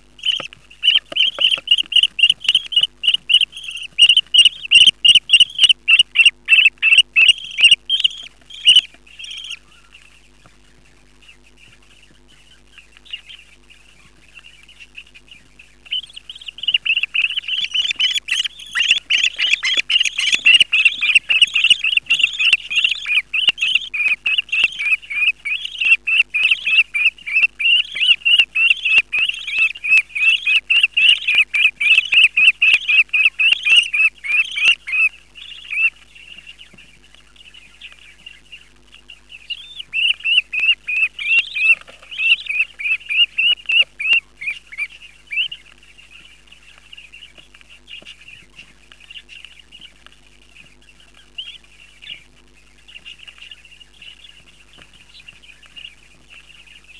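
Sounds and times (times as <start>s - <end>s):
bird chicks chirping: 0.0s - 56.9s.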